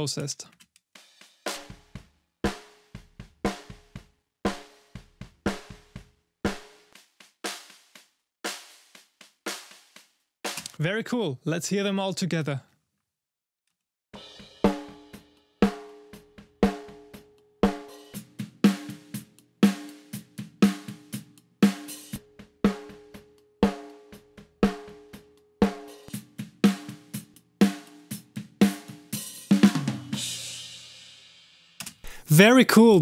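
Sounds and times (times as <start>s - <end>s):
kick and hi-hat hits: 1.0s - 10.1s.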